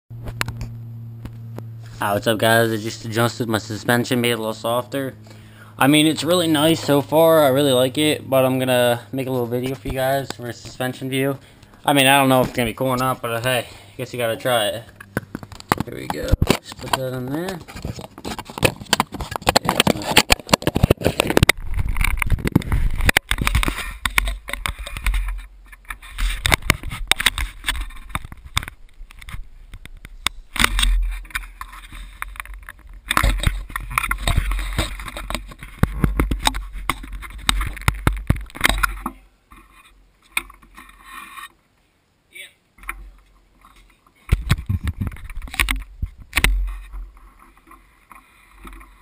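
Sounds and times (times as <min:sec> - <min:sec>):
knocks and scrapes: 0:01.2 - 0:41.6, 0:42.8 - 0:49.0
camera handling clicking and rubbing: 0:14.9 - 0:41.5, 0:43.6 - 0:49.0.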